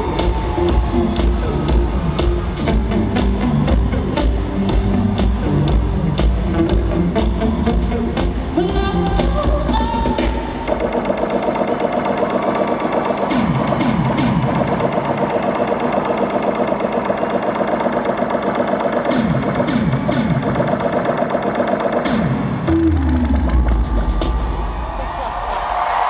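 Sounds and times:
buzzing electronic pulse: 10.4s - 23.7s.

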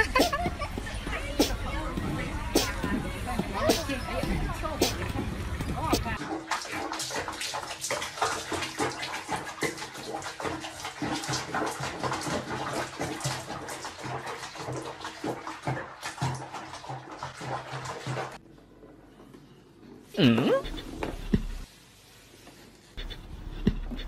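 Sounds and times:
water splashing in a basin: 0.9s - 18.4s.

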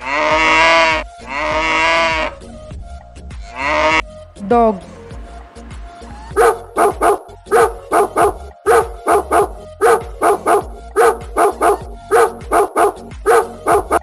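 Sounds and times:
dog barking: 6.3s - 14.0s.

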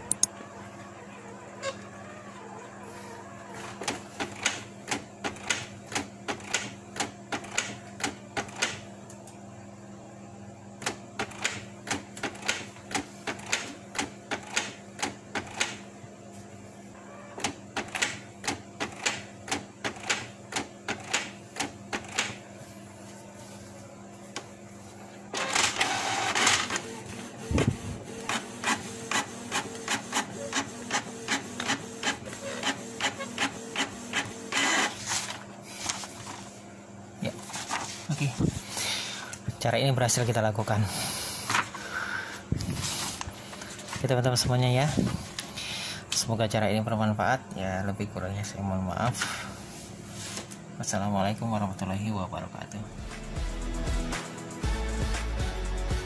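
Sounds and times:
printer hum: 0.0s - 51.1s
printer feeding out paper: 25.3s - 36.5s
printer mechanism clicking: 27.6s - 35.0s.

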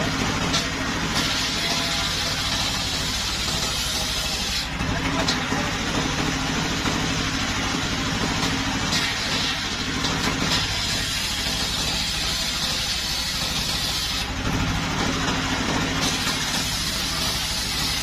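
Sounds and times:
saw blade cutting wood: 0.0s - 7.1s, 8.2s - 18.0s.

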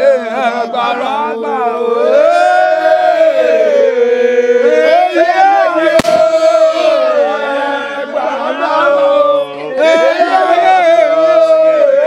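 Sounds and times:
men chanting: 0.0s - 12.0s
sharp crack: 6.0s - 6.6s.

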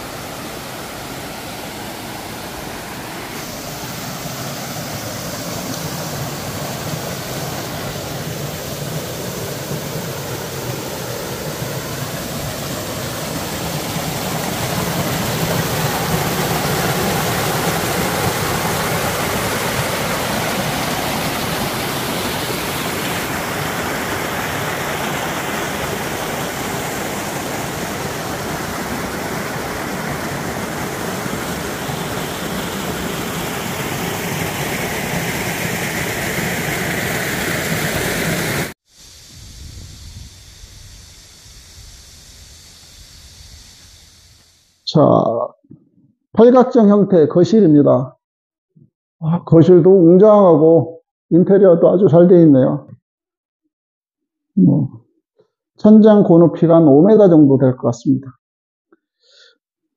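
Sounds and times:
waterfall splashing over rocks: 0.0s - 39.3s.

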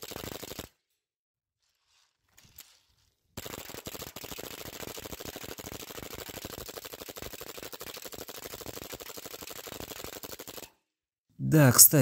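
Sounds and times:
airsoft pistol full-auto firing: 0.0s - 0.7s, 3.4s - 10.9s.

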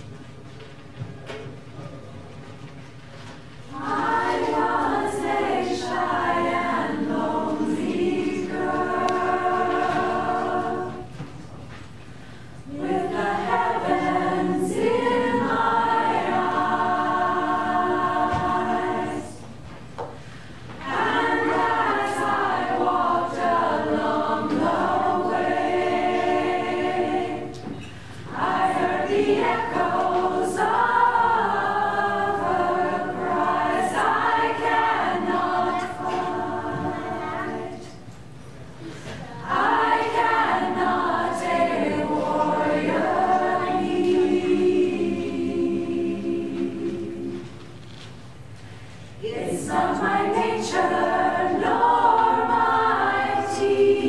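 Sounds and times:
women's choir singing a cappella: 3.7s - 11.5s, 12.2s - 54.0s.

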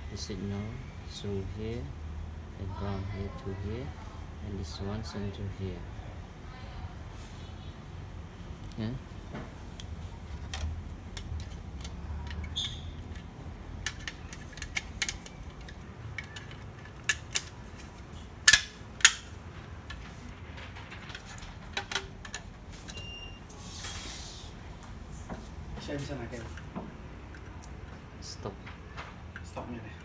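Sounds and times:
rustling scrape: 23.5s - 24.6s.

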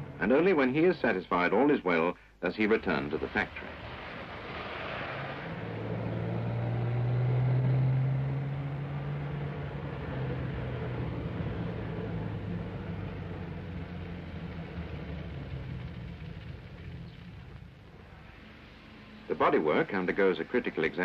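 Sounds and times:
car engine running: 5.3s - 21.0s.

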